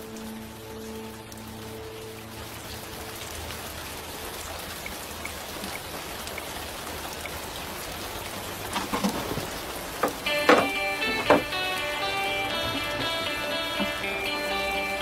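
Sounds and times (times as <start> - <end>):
faint drips: 0.0 - 15.0
steady rain falling: 0.0 - 15.0
sudden knocks: 8.8 - 11.6.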